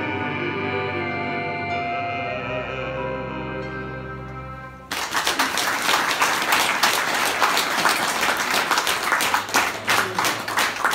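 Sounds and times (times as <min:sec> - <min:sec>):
music: 0:00.0 - 0:05.3
audience applause: 0:04.9 - 0:10.9.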